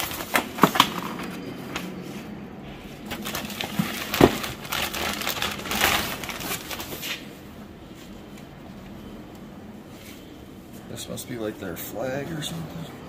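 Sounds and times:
plastic bag crinkling: 2.9s - 7.3s.

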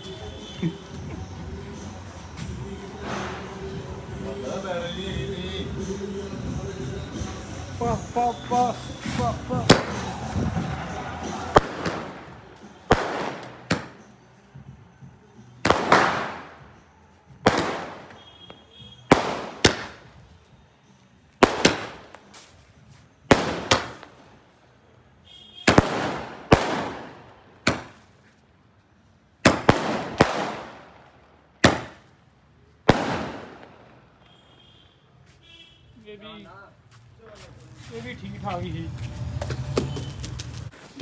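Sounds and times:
firework bangs with echo: 3.0s - 3.7s, 9.1s - 14.1s, 15.6s - 16.8s, 17.4s - 20.2s, 21.4s - 22.3s, 23.2s - 24.3s, 25.6s - 28.1s, 29.4s - 32.1s, 32.9s - 34.2s.

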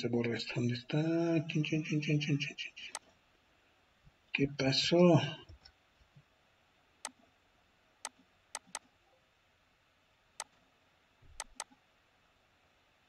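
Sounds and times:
computer mouse clicking: 8.0s - 8.9s, 11.3s - 11.8s.

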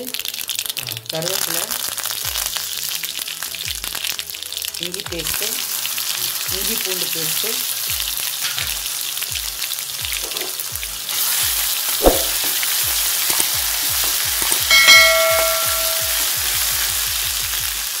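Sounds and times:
spices sizzling in hot oil: 0.0s - 18.0s
bell-like chime: 14.7s - 16.3s.

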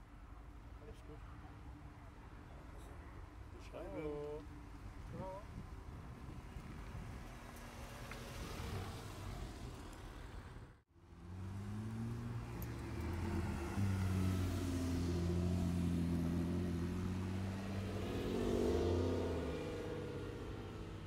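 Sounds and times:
sports car engines at low revs: 11.0s - 21.0s.

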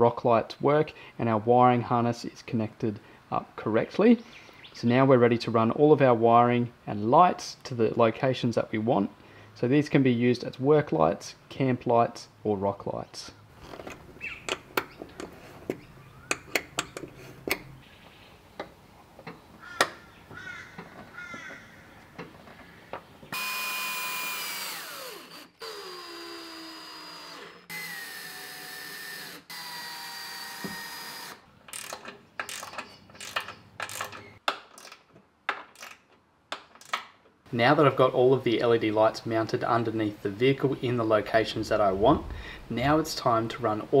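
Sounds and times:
clicks and rattles of fittings: 13.6s - 17.7s, 31.7s - 37.3s
cordless drill whining: 23.3s - 31.4s.

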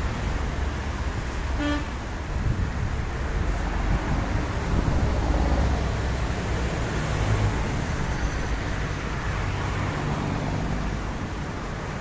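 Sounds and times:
car engines rumbling: 0.0s - 12.0s
tyres hissing on wet road: 0.0s - 12.0s.

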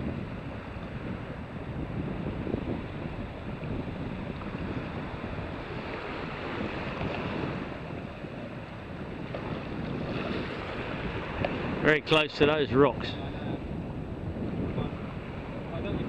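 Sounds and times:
wind buffeting microphone: 0.0s - 16.0s
small waves lapping: 2.4s - 12.6s.

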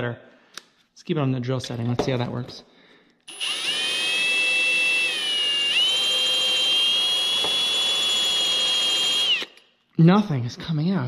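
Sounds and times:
cordless drill motor whining: 3.3s - 9.6s.

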